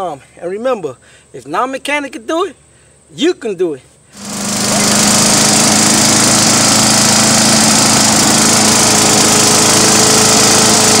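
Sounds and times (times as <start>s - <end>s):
wood chipper engine running: 4.1s - 11.0s.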